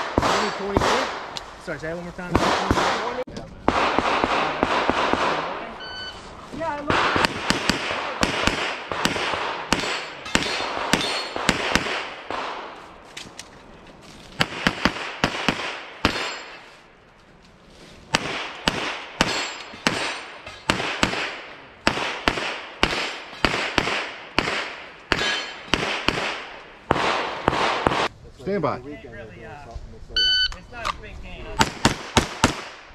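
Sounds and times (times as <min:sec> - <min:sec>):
rapid pistol gunshots: 0:00.0 - 0:01.4, 0:02.2 - 0:05.7, 0:06.9 - 0:12.8, 0:14.4 - 0:16.6, 0:18.1 - 0:28.1, 0:31.6 - 0:32.9.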